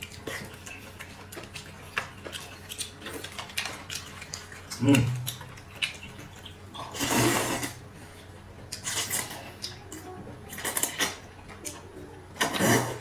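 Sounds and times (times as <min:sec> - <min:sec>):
mouth and eating noises: 0:00.0 - 0:13.0
person slurping noodles: 0:06.8 - 0:07.8, 0:12.4 - 0:13.0.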